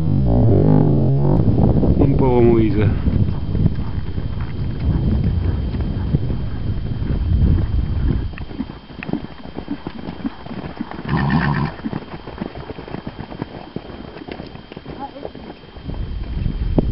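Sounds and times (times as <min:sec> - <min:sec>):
hoofbeats galloping on grass: 0:02.8 - 0:16.9
horse neighing: 0:11.0 - 0:11.8.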